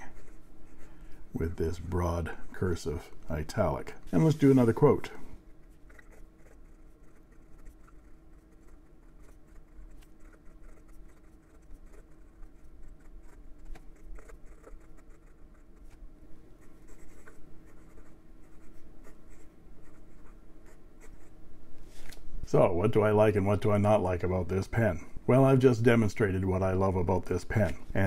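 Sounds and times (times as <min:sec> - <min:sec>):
fountain pen scratching on paper: 0:05.6 - 0:16.0, 0:16.6 - 0:21.4.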